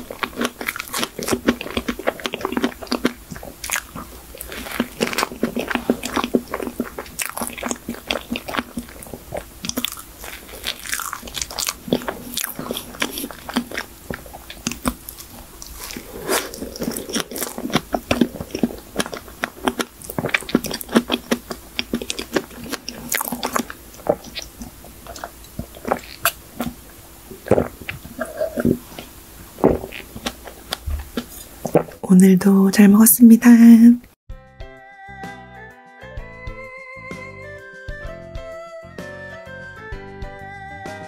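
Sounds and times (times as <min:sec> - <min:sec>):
person chewing cake: 0:00.0 - 0:32.1
sip of iced coffee: 0:15.9 - 0:17.1.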